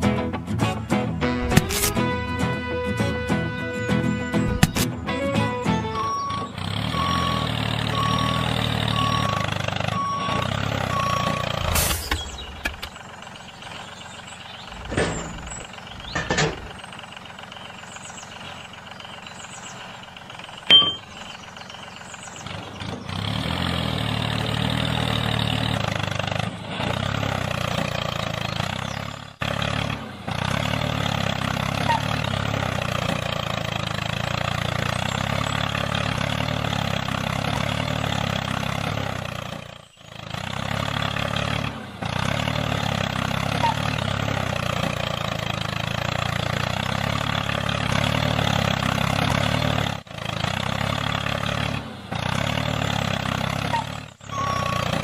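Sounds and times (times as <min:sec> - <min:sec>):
tractor engine running: 0:00.0 - 0:55.0
reversing alarm beeping: 0:05.7 - 0:12.6, 0:20.7 - 0:21.1, 0:54.3 - 0:55.0
clicks and knocks: 0:14.7 - 0:16.8.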